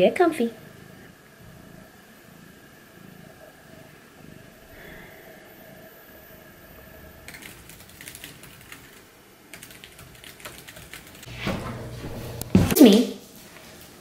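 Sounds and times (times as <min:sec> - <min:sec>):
laptop keyboard typing: 0:07.3 - 0:11.3.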